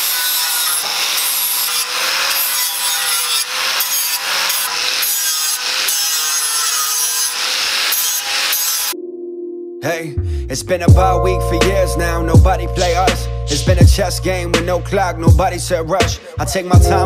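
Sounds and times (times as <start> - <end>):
angle grinder grinding metal: 0.0 - 9.0.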